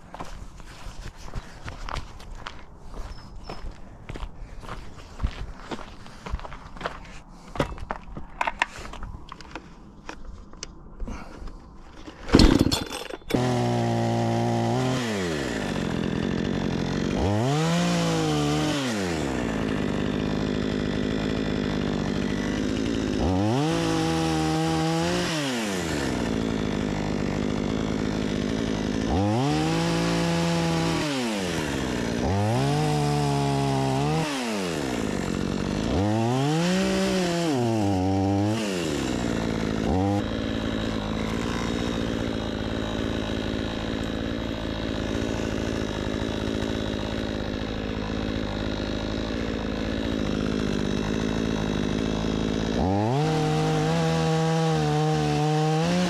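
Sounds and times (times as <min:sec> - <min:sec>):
chainsaw starting and revving: 0:11.9 - 0:56.0.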